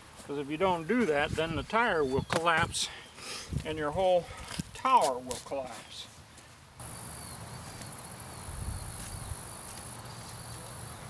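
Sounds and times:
high-pitched insect chorus: 0:06.8 - 0:11.0.

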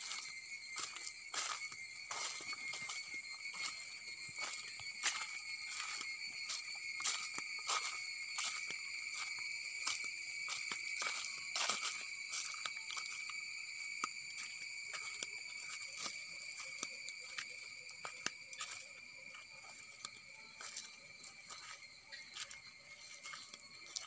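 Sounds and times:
footsteps on dry leaves: 0:00.0 - 0:13.4, 0:20.6 - 0:24.0
insects droning: 0:00.0 - 0:24.0.

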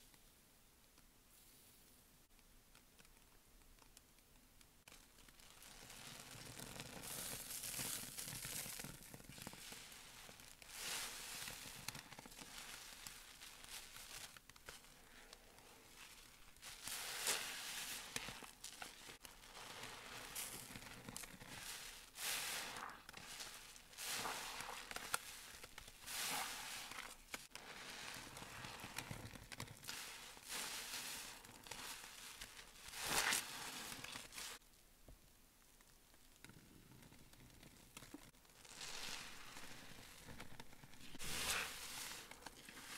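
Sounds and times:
sponge squelching in suds: 0:15.1 - 0:20.7, 0:21.4 - 0:29.0, 0:29.8 - 0:34.6, 0:41.0 - 0:42.9.

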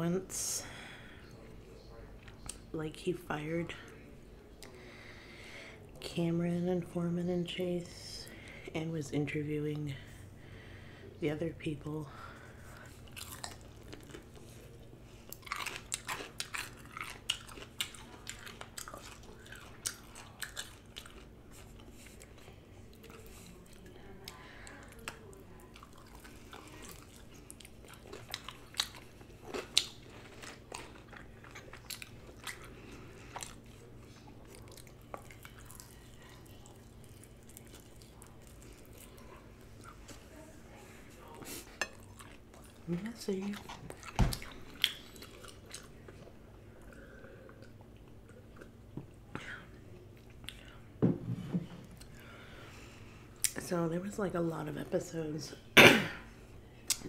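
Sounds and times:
faint steady hum: 0:00.0 - 0:57.0
chewing with wet mouth clicks: 0:13.1 - 0:40.2, 0:41.8 - 0:49.2, 0:50.0 - 0:50.8.

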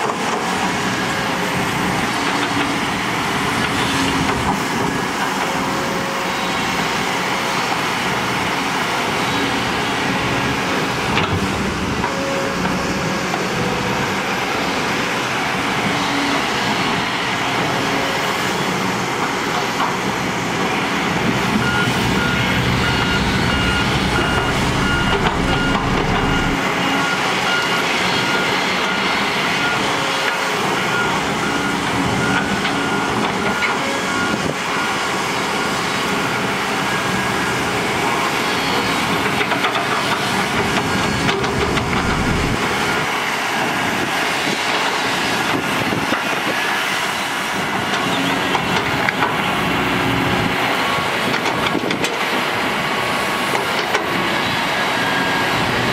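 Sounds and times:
heavy machinery diesel engines: 0:00.0 - 0:55.9
deep engine rumble: 0:20.9 - 0:26.8, 0:40.5 - 0:42.9
back-up alarm beeping: 0:21.4 - 0:35.8, 0:40.4 - 0:43.1.

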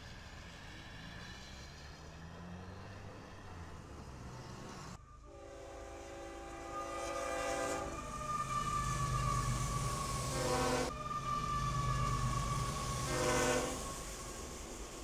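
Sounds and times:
faint road noise: 0:00.0 - 0:15.0
passing train rumble: 0:00.0 - 0:15.0
locomotive horn chord: 0:05.2 - 0:08.0, 0:13.1 - 0:13.8.

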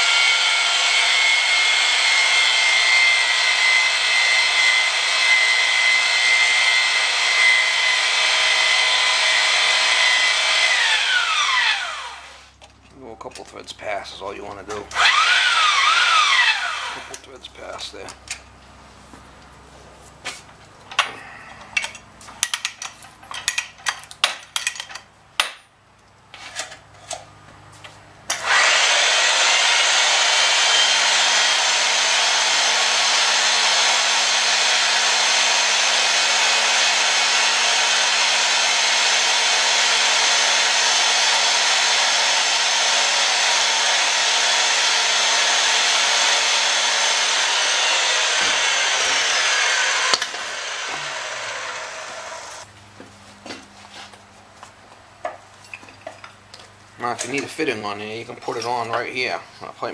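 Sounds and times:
pipe threading machine motor: 0:00.0 - 0:12.6, 0:14.9 - 0:17.3, 0:28.3 - 0:52.7.

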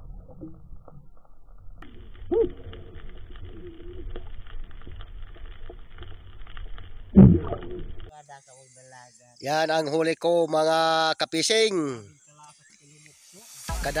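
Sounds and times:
underwater low rumble: 0:00.0 - 0:08.1
loud low thump: 0:07.2 - 0:07.8.

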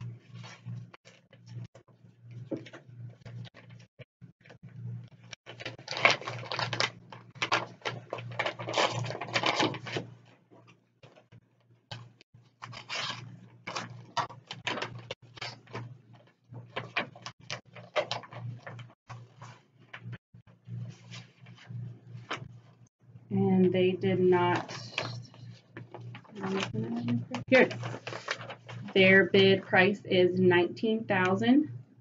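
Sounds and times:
paper rustling and crinkling: 0:00.2 - 0:01.7, 0:05.2 - 0:11.2, 0:11.9 - 0:19.7, 0:20.9 - 0:22.6, 0:24.5 - 0:26.8, 0:27.5 - 0:28.9.

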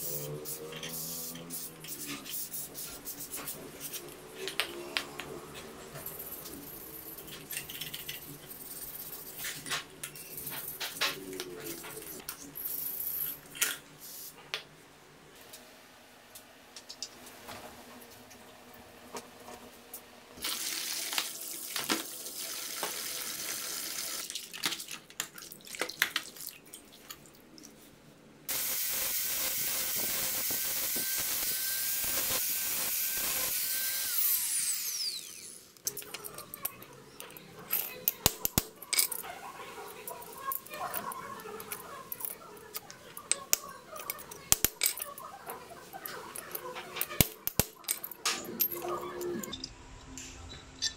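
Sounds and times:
power tool running: 0:28.5 - 0:35.7.

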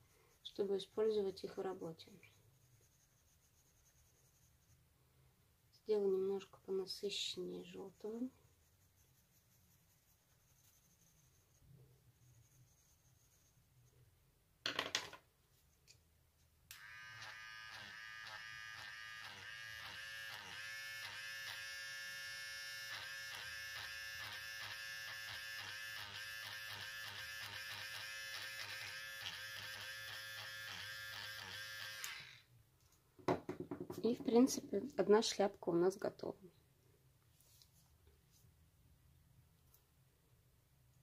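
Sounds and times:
electric eraser whining: 0:16.7 - 0:32.5.

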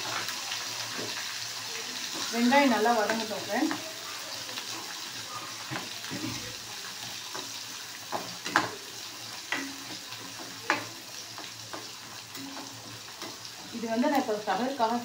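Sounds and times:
onions sizzling in hot oil: 0:00.0 - 0:15.0
spoon scraping and knocking pan: 0:05.6 - 0:14.6.

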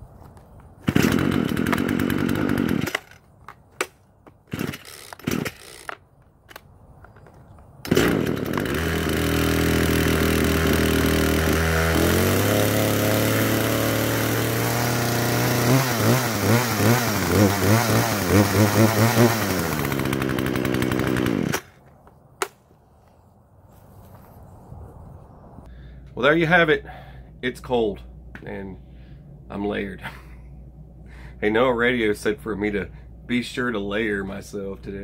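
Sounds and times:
chainsaw running: 0:00.8 - 0:03.3, 0:04.5 - 0:06.0, 0:07.8 - 0:21.8.

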